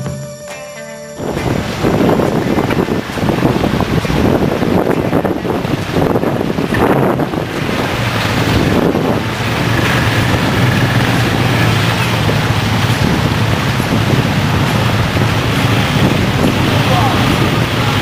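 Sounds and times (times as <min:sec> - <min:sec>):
water and mud splashing: 0:01.2 - 0:18.0
quad bike engines running: 0:01.5 - 0:18.0.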